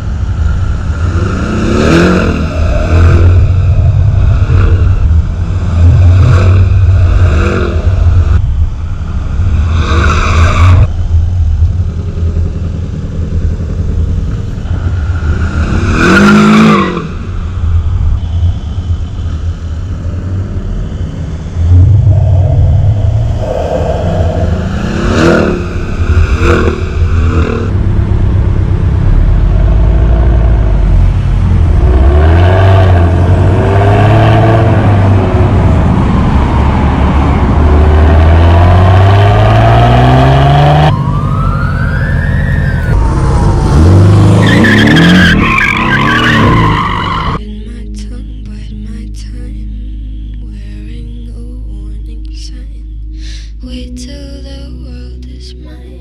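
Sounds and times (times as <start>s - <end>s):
car engine revving past: 21.6s - 27.8s, 42.8s - 46.8s.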